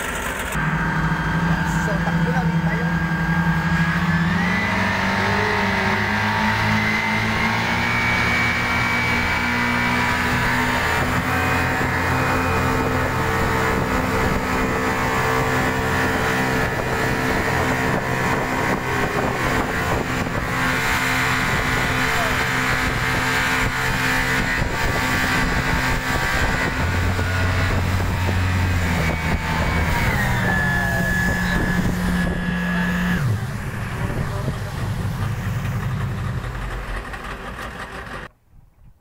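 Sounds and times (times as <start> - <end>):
motorboat engine running: 0.0 - 38.4
wind buffeting: 0.7 - 38.3.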